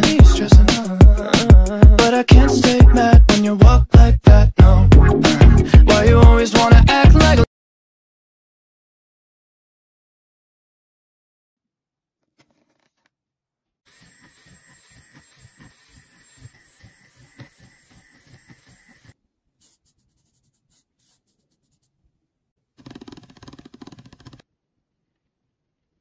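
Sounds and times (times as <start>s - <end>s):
small electric drill whining: 13.9s - 19.2s.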